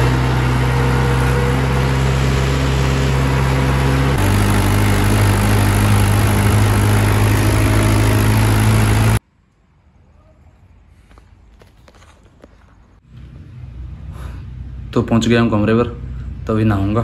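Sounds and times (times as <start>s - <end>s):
vehicle engine running: 0.0s - 9.2s, 13.0s - 17.0s.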